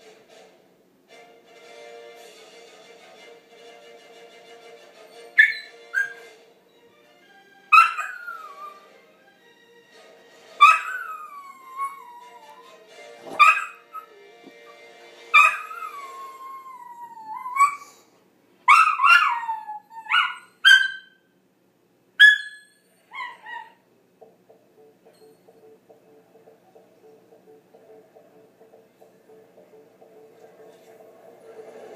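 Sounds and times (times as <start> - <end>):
faint fanfare music: 0.0 - 17.3, 24.2 - 31.9
dog yelps and whines: 5.4 - 6.2, 7.7 - 8.9, 10.6 - 12.8, 13.4 - 14.1, 15.4 - 18.0, 18.7 - 21.2, 22.2 - 23.8
dog howling: 7.8 - 8.9, 10.6 - 12.8, 15.4 - 18.0, 18.7 - 20.6.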